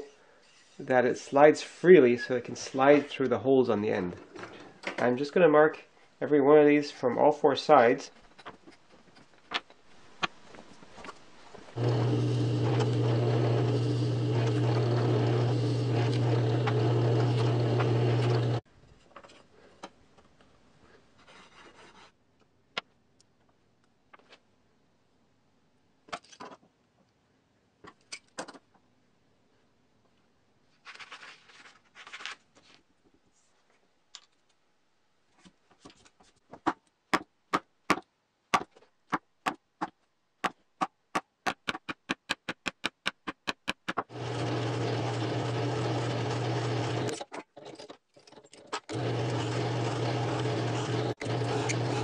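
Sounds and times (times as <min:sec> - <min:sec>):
drill press drilling into wood: 0:11.8 - 0:18.6, 0:44.1 - 0:47.2, 0:48.9 - 0:52.0.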